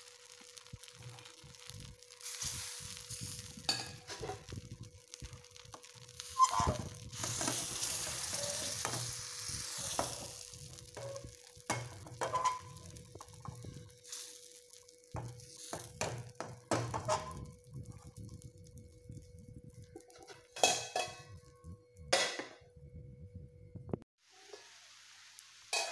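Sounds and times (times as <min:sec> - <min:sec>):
batter sizzling in a pan: 0:00.0 - 0:22.2, 0:24.2 - 0:25.9
pan knocking and scraping on stove: 0:03.6 - 0:04.7, 0:06.4 - 0:13.8, 0:15.2 - 0:18.1, 0:20.0 - 0:21.4, 0:22.1 - 0:22.6.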